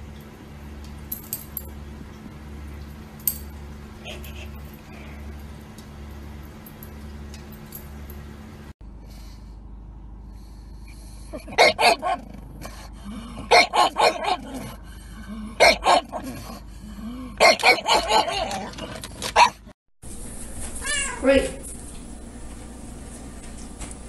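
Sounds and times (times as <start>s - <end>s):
dog barking: 11.4s - 12.2s, 13.5s - 14.6s, 15.6s - 16.2s, 17.4s - 18.7s, 19.4s - 19.6s.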